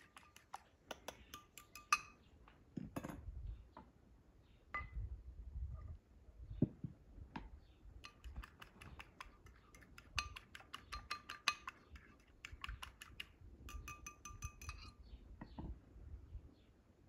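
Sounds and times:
fork clicking against plastic bowl: 0.0 - 2.1, 8.0 - 14.9.

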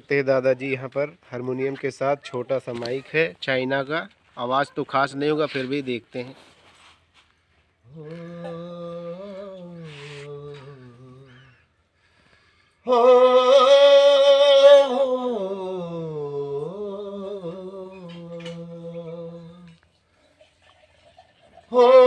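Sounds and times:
man singing held notes: 7.9 - 11.6, 12.9 - 19.8.

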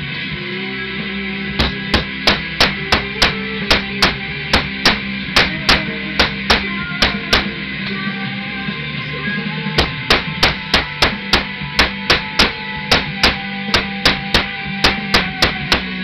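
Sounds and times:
guitar music: 1.1 - 16.0
hammer striking workpiece: 1.6 - 7.5, 9.8 - 16.0.

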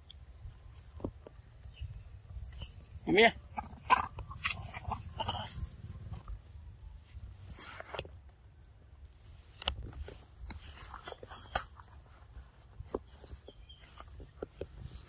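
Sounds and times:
undergrowth rustling underfoot: 4.3 - 15.0.

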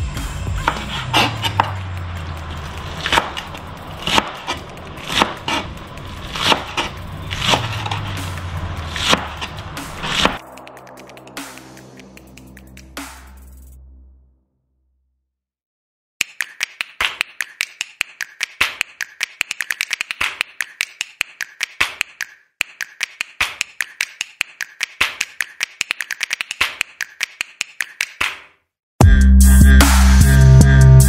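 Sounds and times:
knife chopping on cutting board: 0.5 - 1.9, 3.0 - 10.4.

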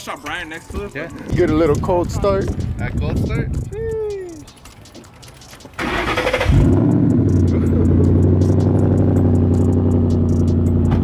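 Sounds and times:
starter motor cranking: 5.3 - 9.7
car engine revving and idling: 5.8 - 11.0.

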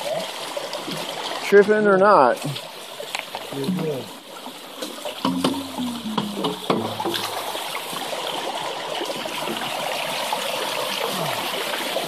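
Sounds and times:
water rushing down trough: 0.0 - 12.0
sharp knocks: 5.2 - 7.2.

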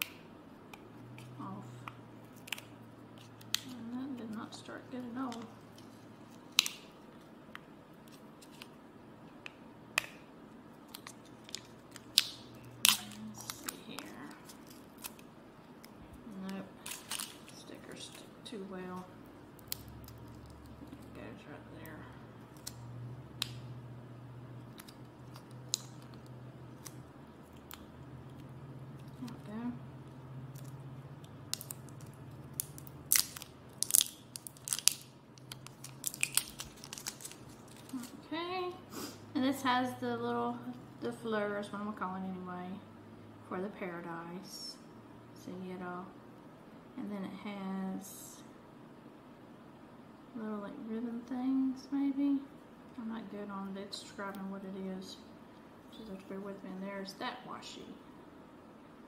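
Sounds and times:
plastic wrap crinkling: 10.8 - 18.3, 30.5 - 38.3.

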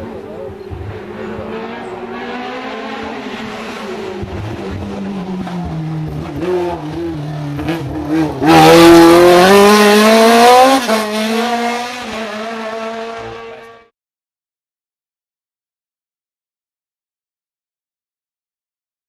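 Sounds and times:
race car engine: 0.0 - 13.9.

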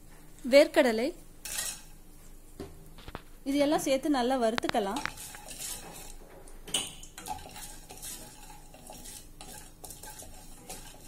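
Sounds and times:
spatula scraping nuts in pan: 1.4 - 1.9, 4.8 - 6.2, 7.2 - 11.0
oil sizzling: 4.4 - 11.0.

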